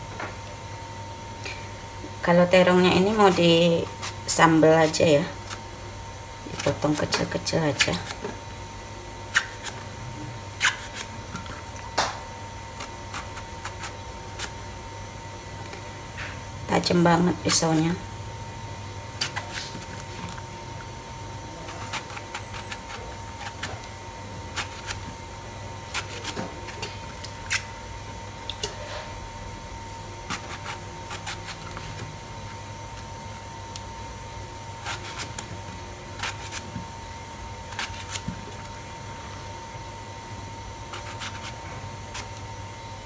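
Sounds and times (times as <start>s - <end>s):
faint steady hum: 0.0s - 43.0s
knife cutting eggplant: 2.7s - 5.7s, 6.4s - 8.4s, 9.3s - 9.9s, 10.6s - 12.1s, 12.8s - 14.6s, 19.2s - 20.5s, 21.6s - 23.9s, 24.5s - 25.1s, 25.9s - 27.7s, 30.2s - 32.1s, 34.8s - 35.5s, 36.1s - 36.9s, 37.7s - 38.7s, 40.9s - 42.4s.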